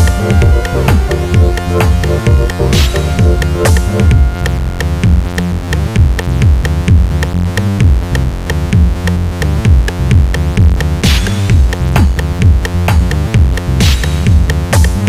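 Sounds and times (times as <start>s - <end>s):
electronic music: 0.0s - 6.7s.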